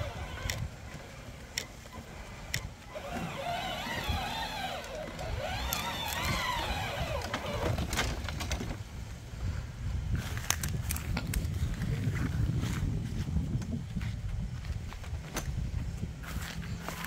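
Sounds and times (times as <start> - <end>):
electric motors whining: 0.0 - 8.4
sharp clicks: 1.5 - 2.9, 3.8 - 7.6.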